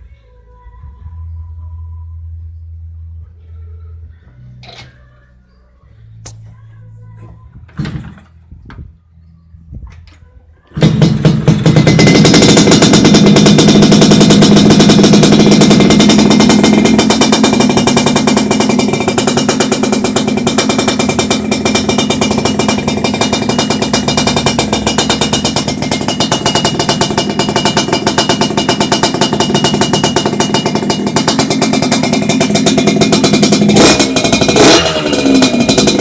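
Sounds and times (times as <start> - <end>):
motorcycle engine idling: 10.7 - 36.0.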